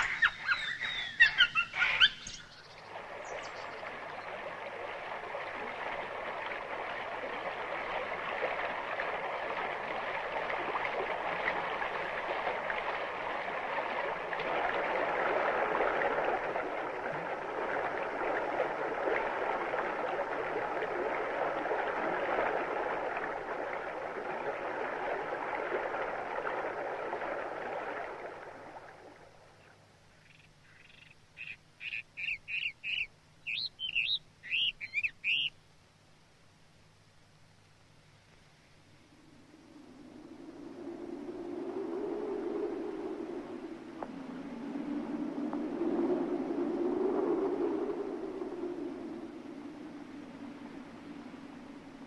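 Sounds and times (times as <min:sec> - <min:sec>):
short high bird chirps: 0:00.0 - 0:02.6, 0:30.8 - 0:35.5
rushing stream water: 0:00.0 - 0:29.6.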